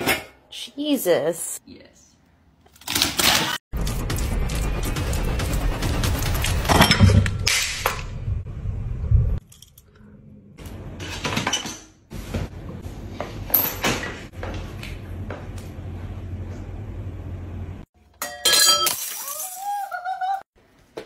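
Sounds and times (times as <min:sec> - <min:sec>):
spoon clinking on ceramic dishes: 0:18.2 - 0:19.0.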